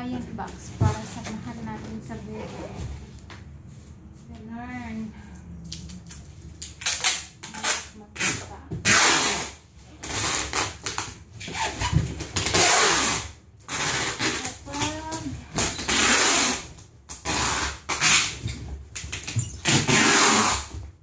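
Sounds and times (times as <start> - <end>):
packing tape ripping: 5.7 - 20.7.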